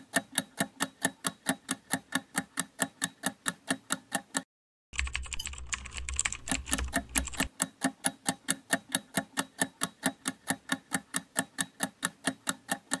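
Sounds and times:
timer ticking: 0:00.0 - 0:13.0
rapid clicks: 0:05.0 - 0:07.7.

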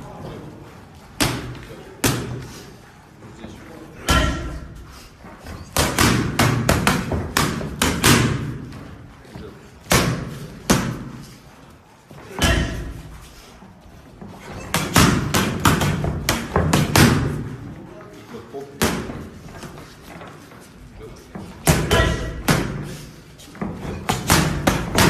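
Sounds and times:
boxing gloves punching focus mitts: 0:05.4 - 0:08.8, 0:09.7 - 0:11.4, 0:12.2 - 0:13.3, 0:14.2 - 0:17.7, 0:21.3 - 0:25.0.

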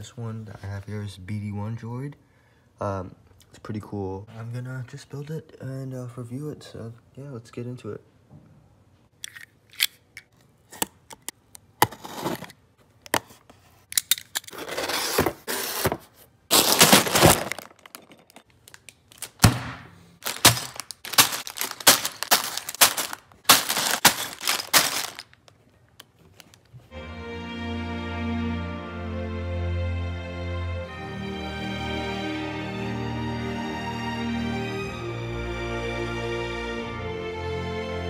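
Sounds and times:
cardboard box tearing open: 0:14.5 - 0:17.7
plastic bags crinkling: 0:16.5 - 0:19.5, 0:20.2 - 0:26.7.

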